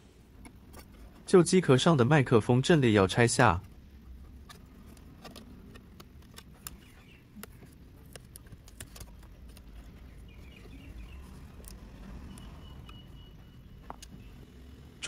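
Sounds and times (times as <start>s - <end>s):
faint clicks and taps: 3.6s - 13.0s, 13.8s - 14.4s.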